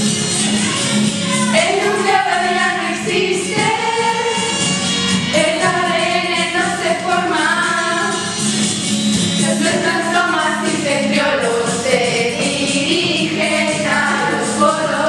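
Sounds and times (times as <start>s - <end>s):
women singing together: 1.4s - 4.6s, 5.3s - 8.3s, 9.4s - 15.0s.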